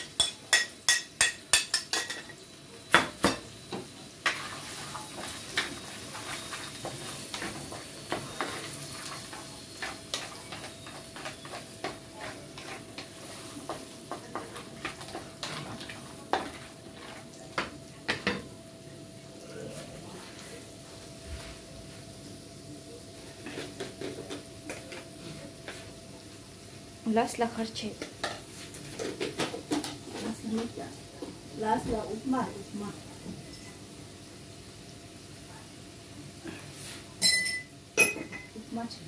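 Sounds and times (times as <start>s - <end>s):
vegetables sizzling in a wok: 0.0s - 39.0s
spatula scraping and knocking pan: 3.0s - 18.5s, 27.9s - 31.3s
metal spoon clinking on plate: 37.2s - 38.5s.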